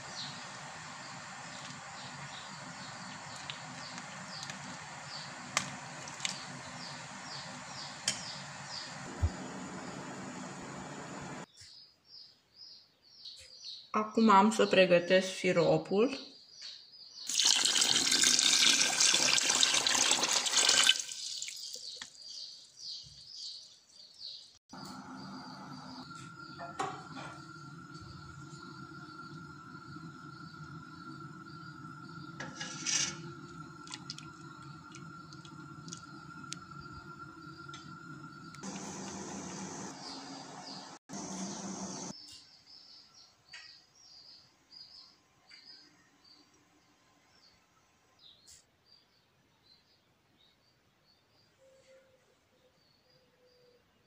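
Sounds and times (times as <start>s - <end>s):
water boiling and bubbling: 0.0s - 11.4s, 17.3s - 22.0s, 25.3s - 42.2s
steady hum with high tone: 6.6s - 11.5s, 24.8s - 42.1s
water pouring into a pot: 17.3s - 21.9s, 32.4s - 39.4s.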